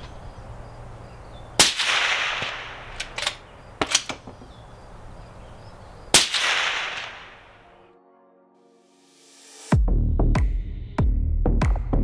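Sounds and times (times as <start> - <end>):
suppressed rifle shots: 1.6 - 4.4, 6.1 - 7.6
rifle bolt metallic clicks: 1.8 - 4.4.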